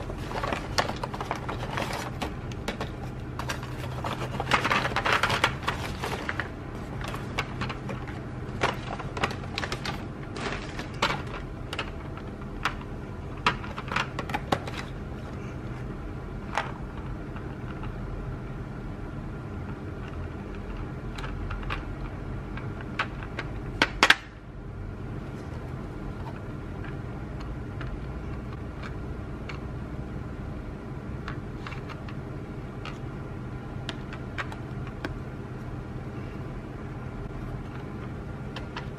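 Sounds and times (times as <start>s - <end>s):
steady low hum: 0.0s - 38.9s
shopping bag crinkling: 3.4s - 11.4s.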